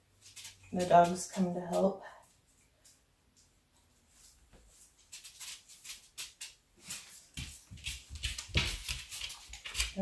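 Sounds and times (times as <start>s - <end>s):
dog claws clicking on wooden floor: 5.1s - 10.0s.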